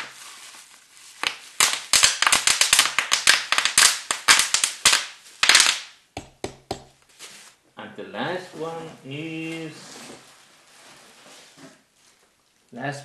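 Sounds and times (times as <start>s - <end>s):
bubble wrap popping: 0.0s - 7.6s.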